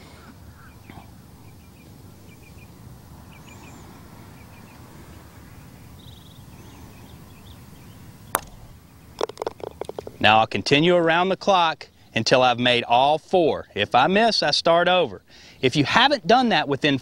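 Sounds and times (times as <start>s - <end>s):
small birds chirping: 0.0s - 10.6s
putter striking golf ball: 8.3s - 10.3s.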